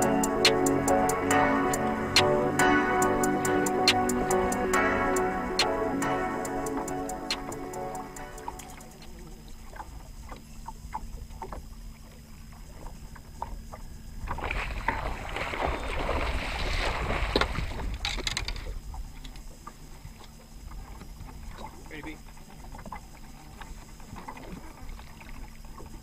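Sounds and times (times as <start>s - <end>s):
small clicks and splashes: 8.5s - 26.0s
fish thrashing in water: 12.5s - 18.0s.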